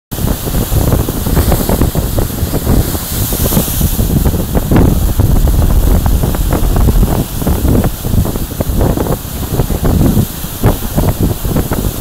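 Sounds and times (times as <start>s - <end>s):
heavy surf on rocks: 0.2s - 12.0s
wind buffeting microphone: 0.2s - 12.0s
water pouring off rock ledges: 3.4s - 8.8s.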